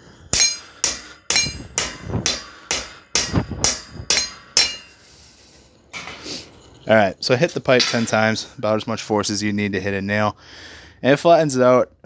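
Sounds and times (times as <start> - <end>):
hammer striking metal pipe: 0.3 - 5.1, 7.8 - 8.4.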